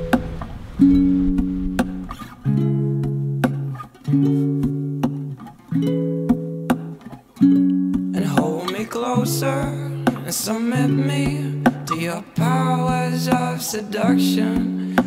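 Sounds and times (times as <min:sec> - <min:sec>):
guitar strumming chords: 0:00.0 - 0:15.0
person singing: 0:08.1 - 0:15.0.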